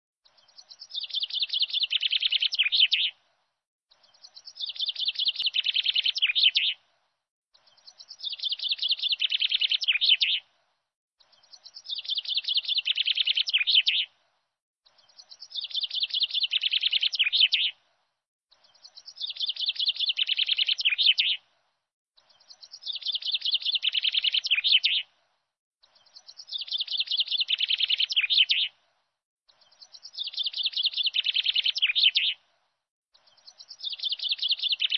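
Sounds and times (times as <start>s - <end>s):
bird song trilling: 0.2s - 3.2s, 3.9s - 6.8s, 7.6s - 10.4s, 11.2s - 14.1s, 14.9s - 17.8s, 18.6s - 21.4s, 22.2s - 25.1s, 25.8s - 28.8s, 29.5s - 32.4s, 33.2s - 34.9s.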